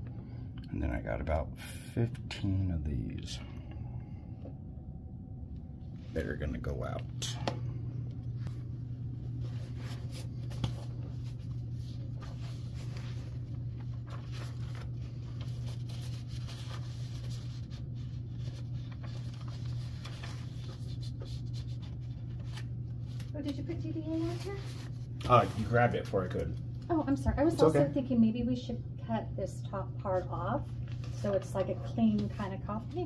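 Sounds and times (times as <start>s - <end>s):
low steady hum: 0.0s - 33.0s
paper rustling: 9.3s - 26.5s.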